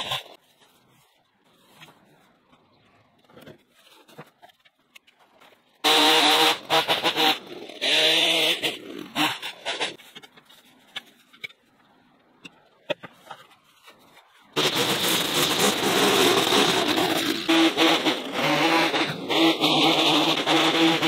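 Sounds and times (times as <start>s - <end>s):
small petrol engine revving: 0.0s - 0.4s, 5.8s - 10.0s, 14.6s - 21.0s.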